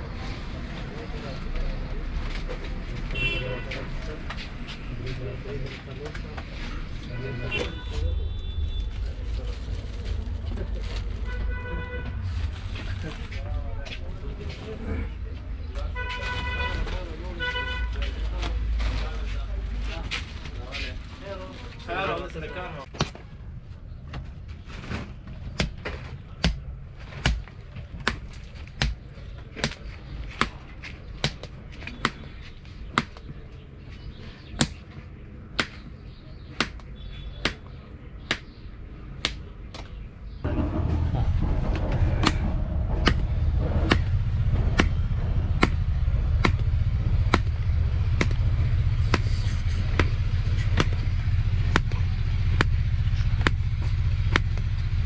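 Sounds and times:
low engine rumble: 0.0 - 55.0
sharp knocks: 40.7 - 54.6.

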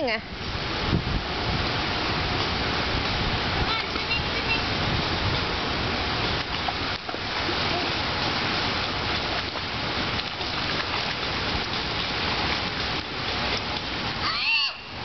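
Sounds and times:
water rushing: 0.0 - 15.0
children splashing in a pool: 6.3 - 15.0.

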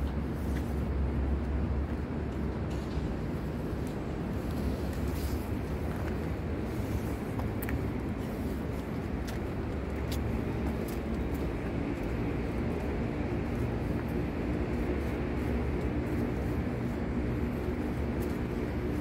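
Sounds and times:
low rumbling background noise: 0.0 - 19.0.

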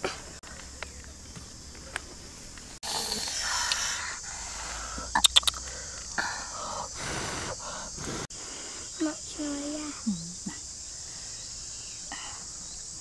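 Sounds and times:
high insect buzz: 2.8 - 13.0
sharp clicks: 5.2 - 5.8.

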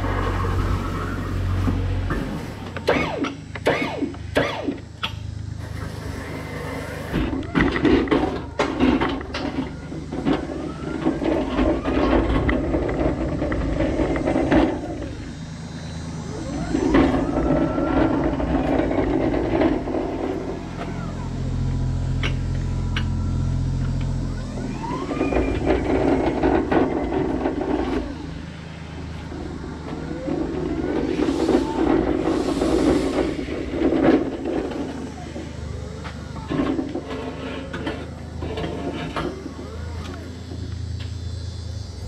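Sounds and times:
drive motor whine: 0.0 - 42.0
pallet jack rattling over concrete: 6.7 - 15.3, 24.6 - 28.5.

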